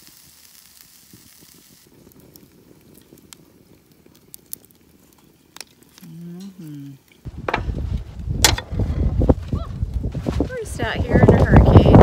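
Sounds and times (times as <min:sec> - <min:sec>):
food sizzling: 0:00.0 - 0:07.3
fire crackling and hissing: 0:00.0 - 0:12.0
fire pops: 0:00.0 - 0:12.0.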